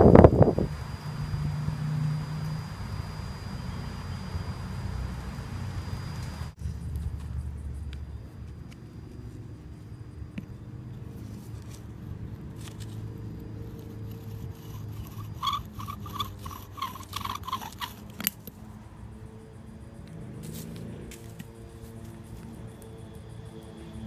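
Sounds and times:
steady low hum: 0:00.0 - 0:24.0
spindle squeaking against stone: 0:13.8 - 0:18.4.

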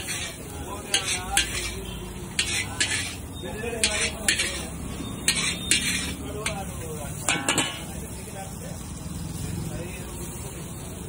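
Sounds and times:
metal spatula scraping a wok: 0:00.0 - 0:08.3
low sizzle: 0:00.0 - 0:11.0.

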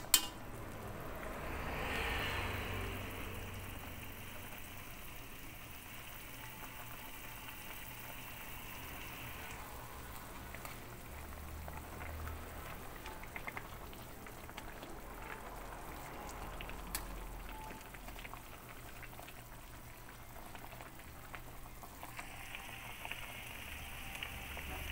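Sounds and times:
metal spoon scraping a pan: 0:00.0 - 0:00.4
water bubbling in a pan: 0:00.0 - 0:24.9.

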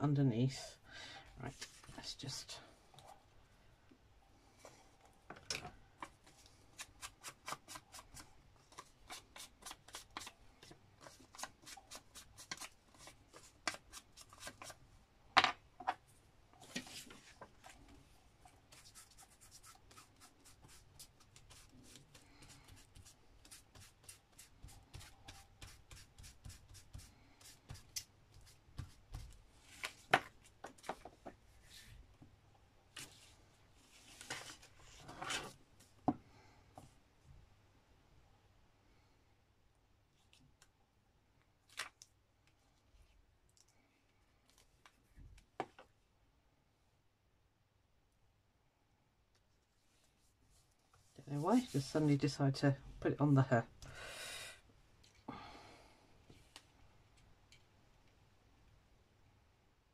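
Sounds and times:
paper rustling: 0:32.9 - 0:35.6.

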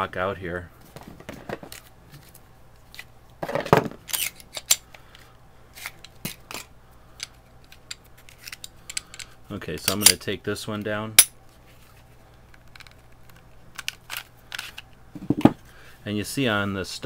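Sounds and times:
pistol parts clicking and clattering: 0:04.0 - 0:05.2, 0:05.8 - 0:10.2, 0:12.6 - 0:14.9.

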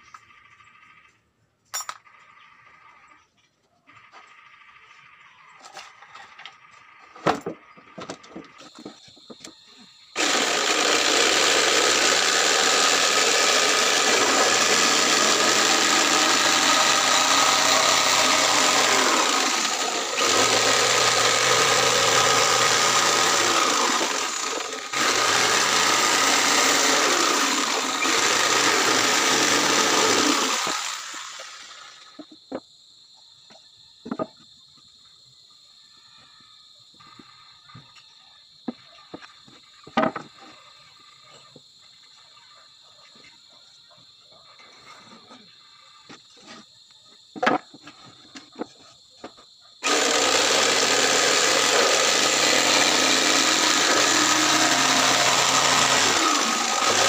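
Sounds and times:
electric jigsaw cutting plywood: 0:10.2 - 0:32.2, 0:49.8 - 0:57.0
wood knocks: 0:34.0 - 0:34.4, 0:39.8 - 0:40.5.

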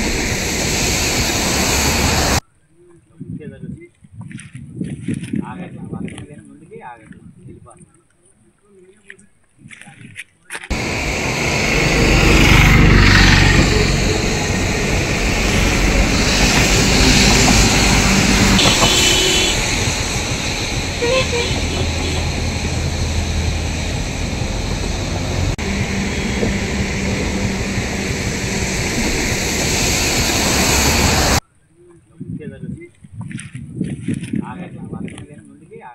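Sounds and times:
floodwater rushing through gates: 0:10.7 - 0:31.4.

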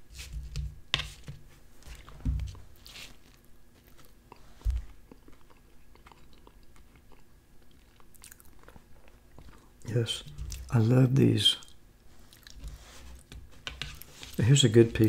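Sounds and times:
close-miked chewing: 0:03.2 - 0:10.7, 0:11.6 - 0:12.6.

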